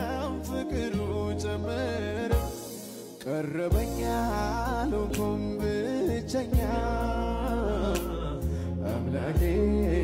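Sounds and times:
low bass notes: 0.0s - 2.5s, 3.7s - 10.0s
man singing: 0.0s - 10.0s.

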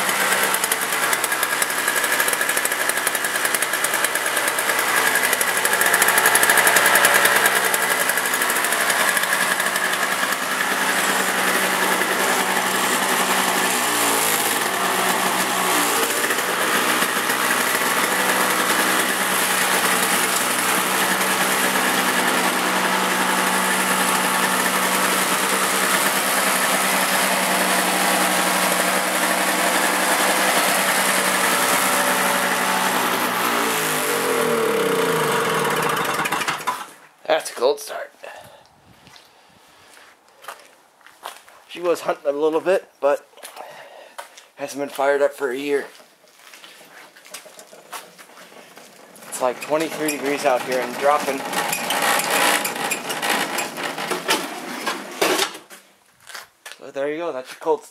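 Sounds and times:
snowblower engine running: 0.0s - 37.0s, 47.4s - 55.4s.

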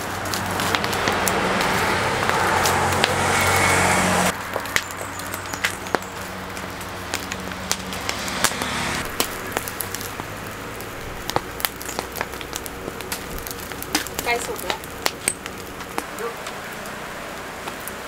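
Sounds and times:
fire crackling and popping: 0.0s - 18.0s
low motor hum: 0.0s - 18.0s.

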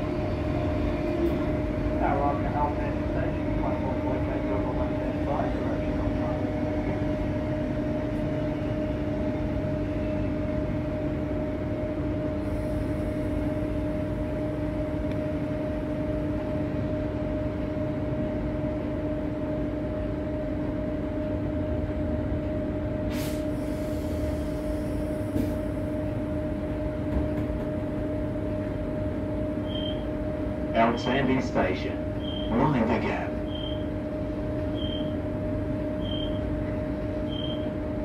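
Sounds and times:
train running rumble: 0.0s - 38.0s
two-note electrical hum: 25.7s - 38.0s.

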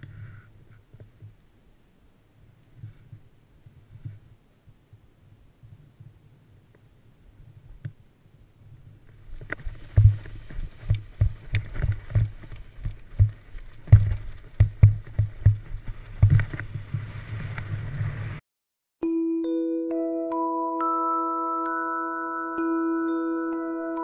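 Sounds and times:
footsteps crunching in snow: 9.5s - 18.4s.

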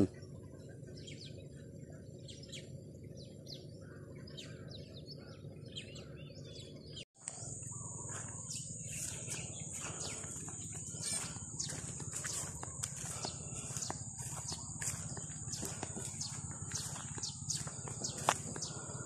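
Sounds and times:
small birds chirping: 0.0s - 19.0s
steady high-pitched whine: 7.2s - 19.0s
footsteps on dirt path: 8.0s - 19.0s.

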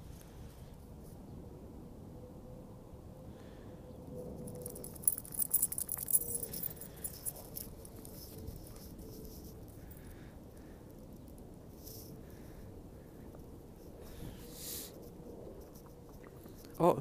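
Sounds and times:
faint outdoor background: 0.0s - 17.0s
small metal pieces jingling: 4.4s - 10.1s.

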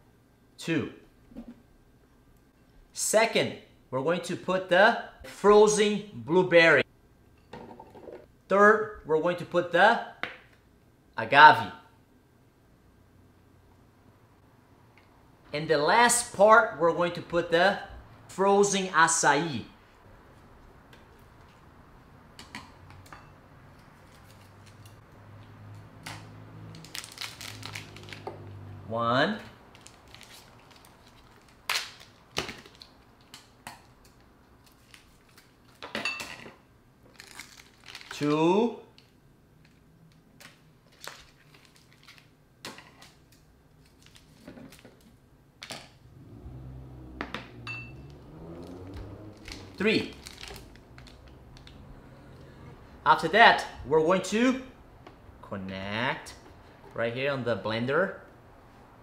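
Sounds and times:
plastic crinkles and clicks: 37.1s - 38.2s, 39.0s - 42.3s, 49.4s - 51.8s.

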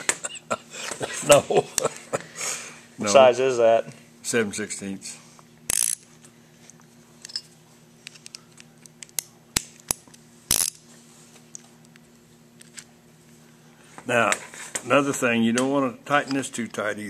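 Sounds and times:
faint steady hum: 0.0s - 17.0s
socket wrench clicking: 5.7s - 6.0s, 8.2s - 10.8s.

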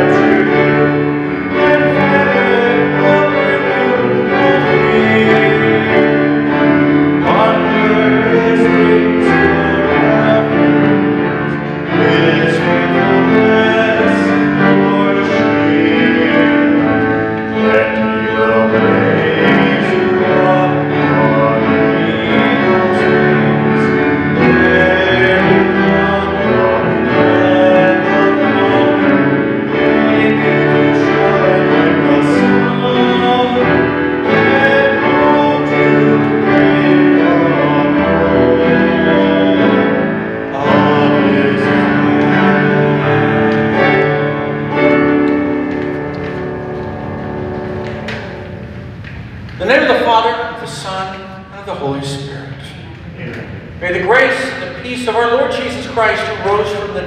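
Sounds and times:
person singing: 0.0s - 45.3s
church music on piano: 0.0s - 57.0s.

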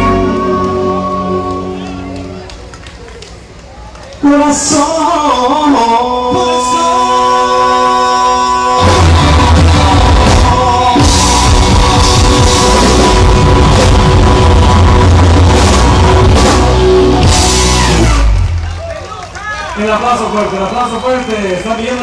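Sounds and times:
held chords: 0.0s - 2.5s, 8.7s - 18.6s
bass and drums: 0.0s - 2.7s, 8.6s - 18.9s
band music: 0.0s - 3.6s, 4.2s - 19.0s.

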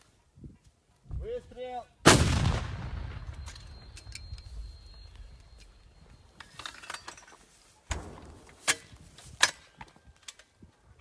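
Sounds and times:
metallic clinks and knocks: 3.3s - 10.6s.

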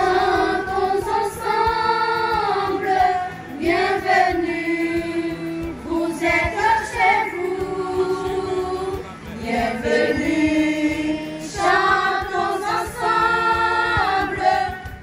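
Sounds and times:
girls singing together: 0.0s - 15.0s.

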